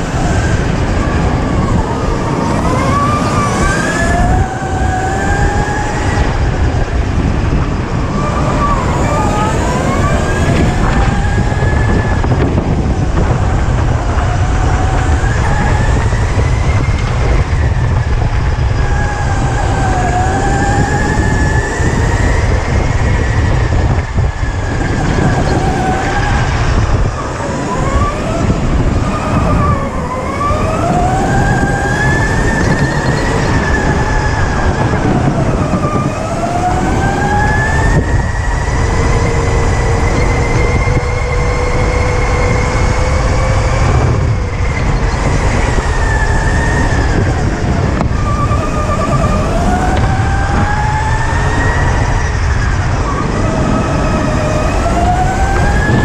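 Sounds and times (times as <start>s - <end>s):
steady low rumble: 0.0s - 30.2s
electric go-kart motor whining: 0.0s - 56.0s.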